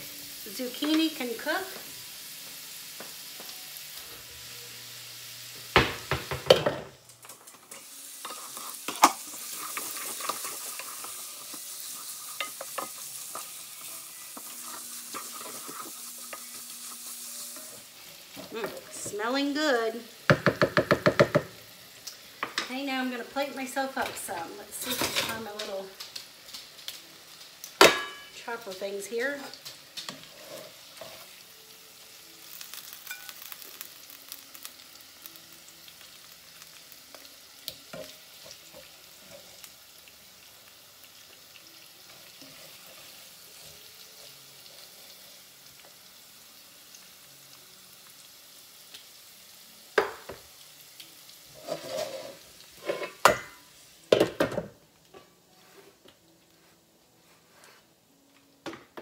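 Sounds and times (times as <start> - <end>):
food sizzling in a skillet: 0.0 - 59.0
cookware clattering: 24.8 - 25.4, 27.8 - 28.4, 51.6 - 54.7.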